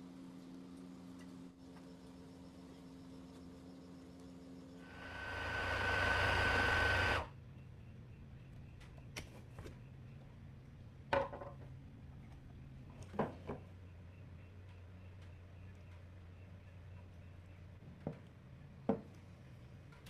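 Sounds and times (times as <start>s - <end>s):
food processor motor whining: 4.8s - 7.3s.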